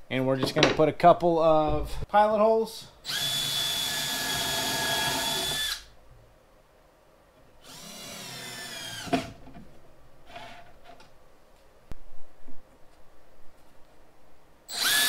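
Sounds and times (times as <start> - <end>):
cordless drill boring: 3.1 - 5.9, 7.6 - 9.1, 14.7 - 15.0.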